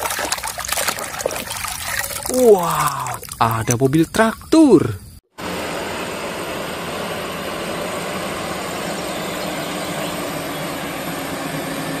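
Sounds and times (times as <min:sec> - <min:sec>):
tractor diesel engine running: 0:05.4 - 0:12.0.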